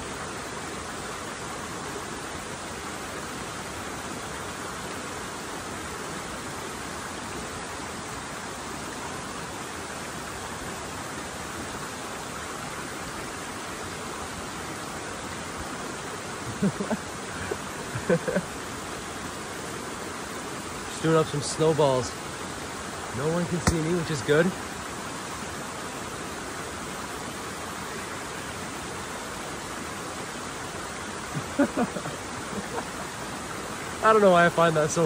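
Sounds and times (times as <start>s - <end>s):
waterfall rushing over rocks: 0.0s - 35.0s.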